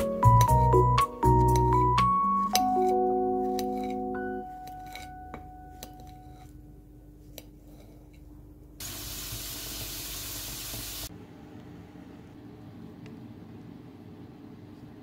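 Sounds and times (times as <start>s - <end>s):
pancakes sizzling in frying pan: 8.8s - 11.1s.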